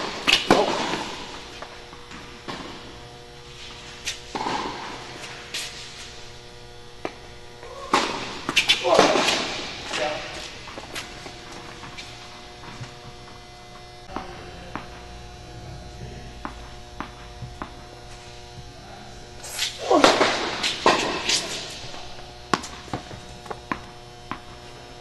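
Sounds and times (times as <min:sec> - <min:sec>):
steady hum: 0:00.0 - 0:25.0
tennis ball bouncing on hard court: 0:04.3 - 0:05.4, 0:07.9 - 0:09.6, 0:14.0 - 0:15.1, 0:16.2 - 0:18.4, 0:20.0 - 0:24.8.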